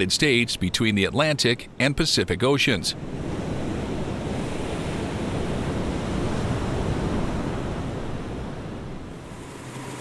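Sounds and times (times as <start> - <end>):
waves breaking on beach: 2.9 - 10.0.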